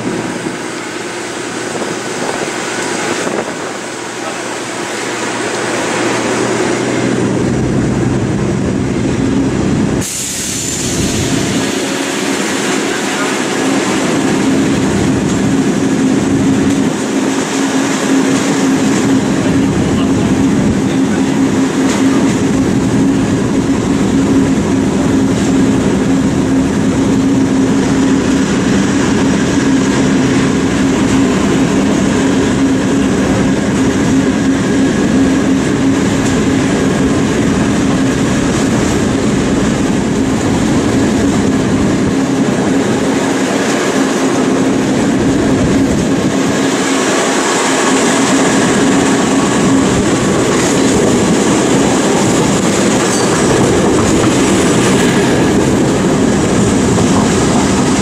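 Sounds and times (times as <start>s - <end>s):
low locomotive engine hum: 0.0s - 58.0s
wheel-on-rail rumble: 0.0s - 58.0s
loud hiss: 10.0s - 13.8s.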